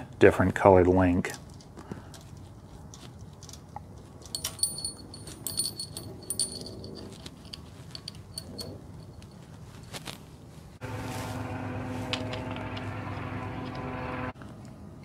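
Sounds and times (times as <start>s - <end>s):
metal chain clinking: 4.2s - 10.1s.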